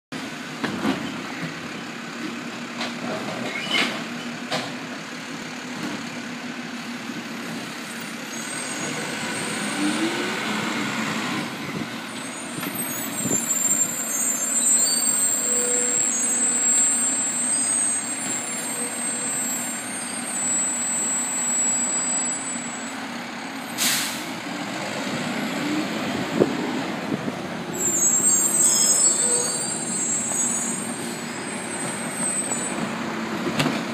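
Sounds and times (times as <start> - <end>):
truck engine rumble: 0.2 - 33.9
hydraulic whines: 12.2 - 23.0, 27.7 - 32.9
air brake hiss: 23.8 - 24.4.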